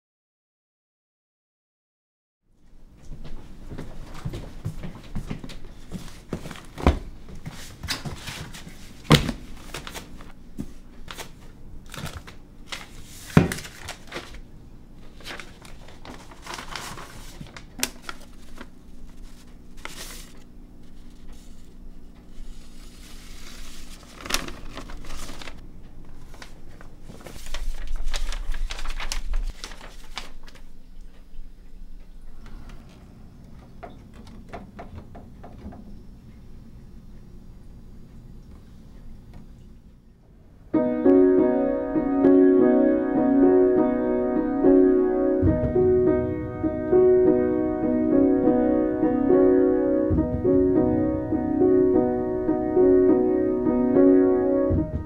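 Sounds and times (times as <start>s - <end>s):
paper rustling and crinkling: 5.6s - 30.8s
low rumble: 45.4s - 49.3s, 50.1s - 53.3s
sharp knocks and clicks: 50.1s - 50.7s.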